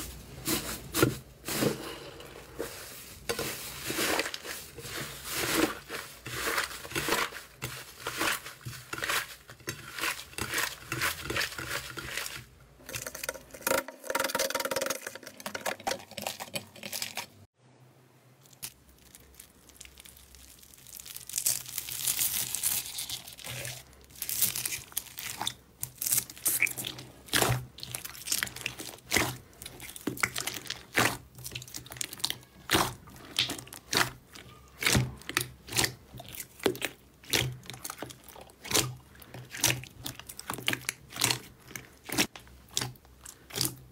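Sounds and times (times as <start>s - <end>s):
foam bead slime crunching: 0.4s - 12.4s, 18.4s - 43.9s
slime crackling and tearing: 18.5s - 43.9s.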